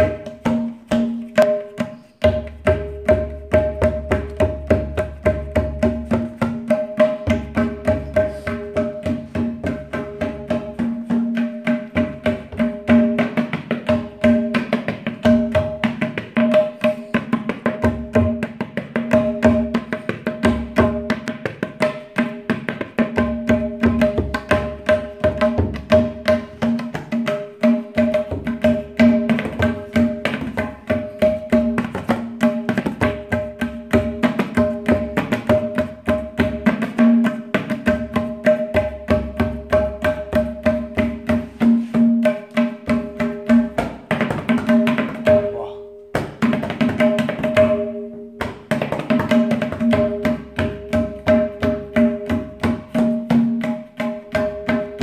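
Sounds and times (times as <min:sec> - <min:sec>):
tabla rapid ringing strokes: 0:00.0 - 0:55.0.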